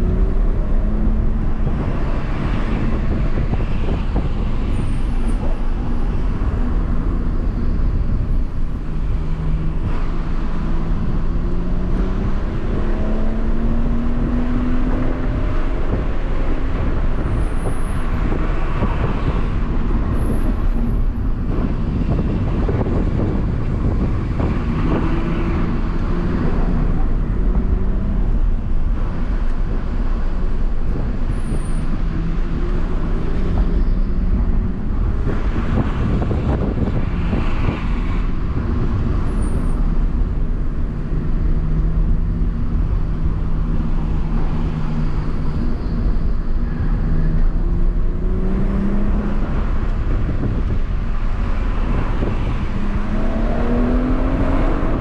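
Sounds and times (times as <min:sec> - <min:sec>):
tyre and road noise: 0:00.0 - 0:55.0
car engine accelerating: 0:38.4 - 0:55.0.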